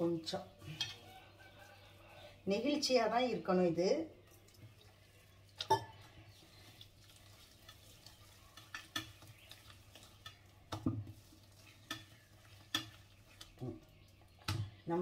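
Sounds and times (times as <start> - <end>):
dough squeezed by hand in bowl: 4.3 - 14.6.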